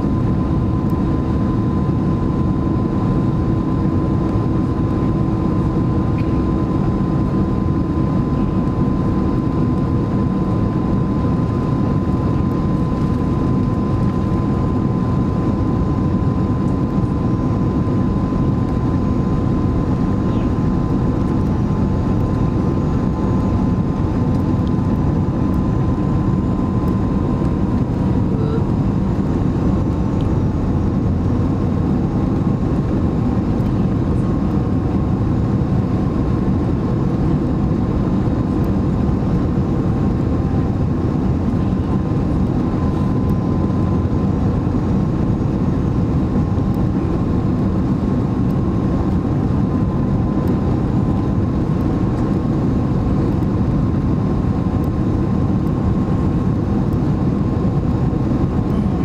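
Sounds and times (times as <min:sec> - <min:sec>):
faint steady whine: 0:00.0 - 0:59.0
jet engines rumbling: 0:00.0 - 0:59.0.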